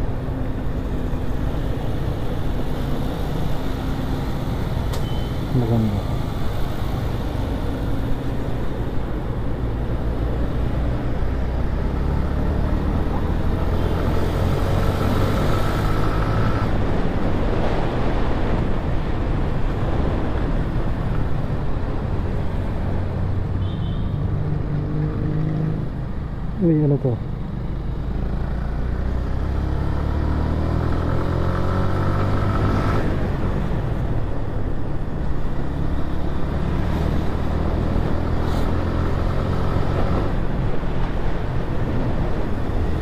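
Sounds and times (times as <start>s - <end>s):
traffic passing: 0.0s - 43.0s
wind and road noise: 0.0s - 43.0s.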